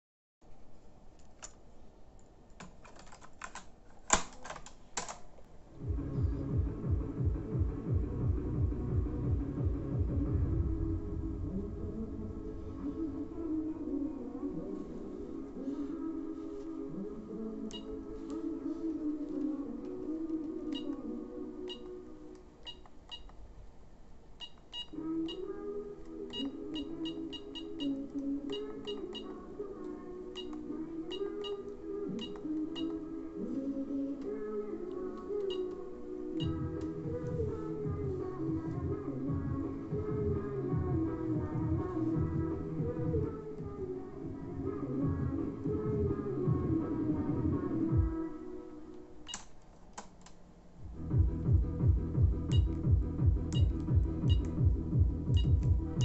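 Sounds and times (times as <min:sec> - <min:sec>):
music with low beat: 0:05.8 - 0:13.8, 0:36.4 - 0:48.2, 0:50.9 - 0:56.0.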